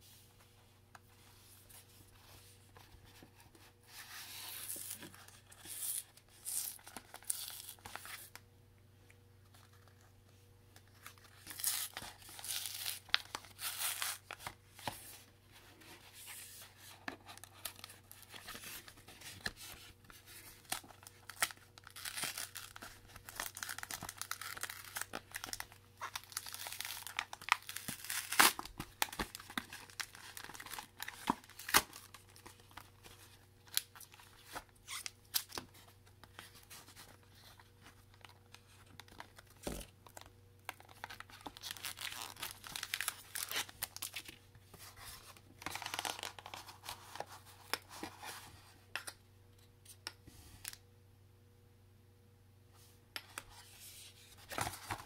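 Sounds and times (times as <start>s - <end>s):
foil wrappers torn and crinkled: 11.3s - 14.5s, 20.6s - 32.9s, 39.1s - 44.4s.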